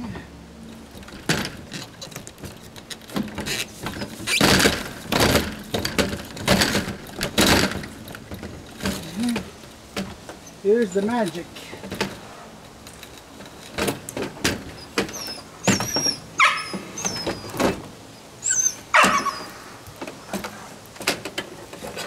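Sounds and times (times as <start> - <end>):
knocks and clatters of camper parts: 0.0 - 18.1, 18.9 - 22.0
dog whining and barking: 14.7 - 17.8, 18.4 - 20.4.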